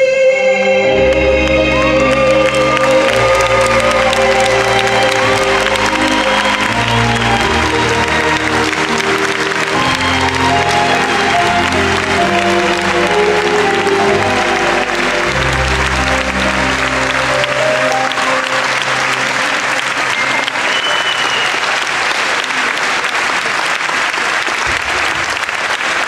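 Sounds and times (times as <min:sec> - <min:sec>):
waltz music: 0:00.0 - 0:22.6
audience applauding: 0:00.9 - 0:26.0.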